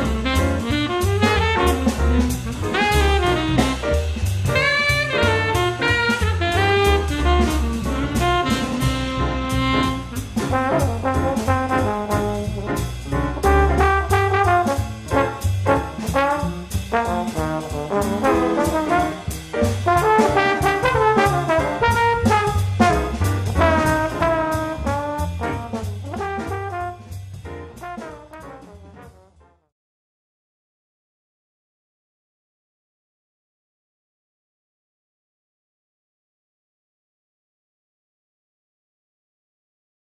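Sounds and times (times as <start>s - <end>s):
steady drum beat: 0.0s - 29.2s
brass horns: 0.0s - 29.7s.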